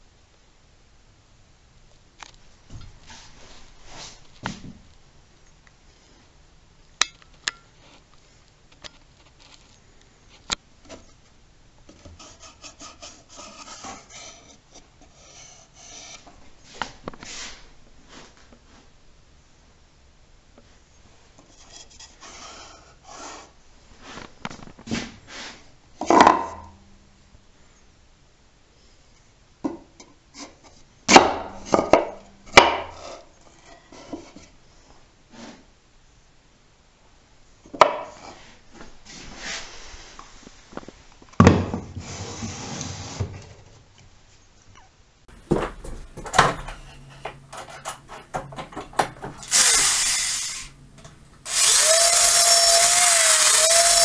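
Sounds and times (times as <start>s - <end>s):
wooden knocks: 45.3s - 50.1s
wood rubbing and scraping: 45.3s - 54.0s.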